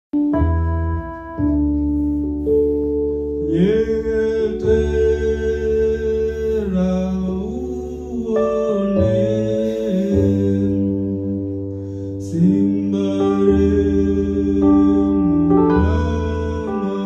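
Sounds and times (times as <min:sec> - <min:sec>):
electronic keyboard chords: 0:00.1 - 0:17.0
low bass: 0:00.1 - 0:17.0
man singing into a microphone: 0:03.4 - 0:17.0.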